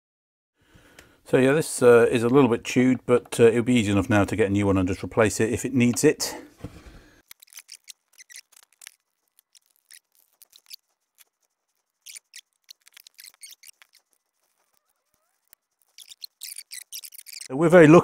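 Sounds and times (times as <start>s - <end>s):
screwdriver clicks and scrapes: 7.2s - 11.3s, 12.0s - 17.5s
faint short squeak: 12.0s - 17.5s.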